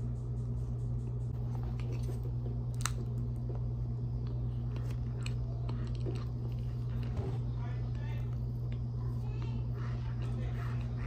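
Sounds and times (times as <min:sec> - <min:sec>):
steady low hum: 0:00.0 - 0:11.0
chewing crunches: 0:01.4 - 0:07.2.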